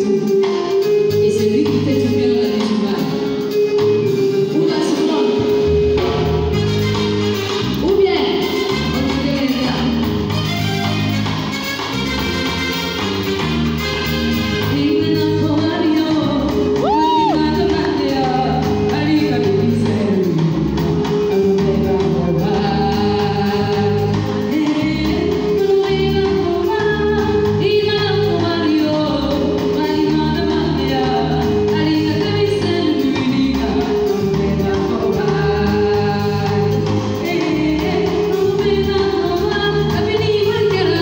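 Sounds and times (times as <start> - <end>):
woman singing into a microphone: 0.0 - 3.6, 14.7 - 41.0
musical accompaniment: 0.0 - 41.0.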